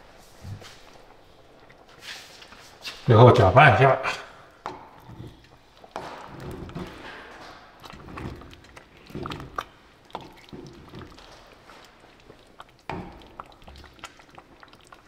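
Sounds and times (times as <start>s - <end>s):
ladle stirring thick porridge: 0.0s - 3.4s, 4.5s - 15.0s.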